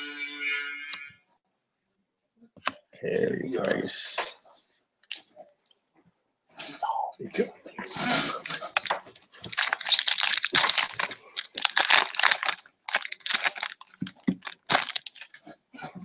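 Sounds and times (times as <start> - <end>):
foil pack tearing and crinkling: 8.4 - 15.4.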